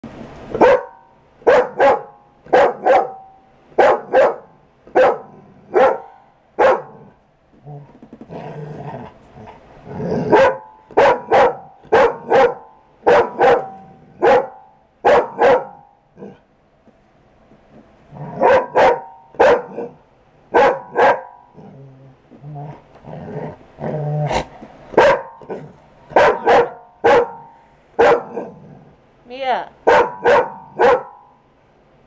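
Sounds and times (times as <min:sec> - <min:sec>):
dog barking: 0:00.6 - 0:07.0, 0:10.3 - 0:15.9, 0:18.3 - 0:21.4, 0:24.9 - 0:28.5, 0:29.8 - 0:31.3.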